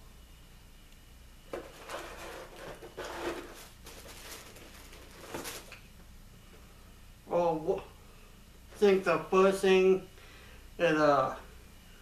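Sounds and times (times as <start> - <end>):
tissue paper rustling: 1.7 - 5.8.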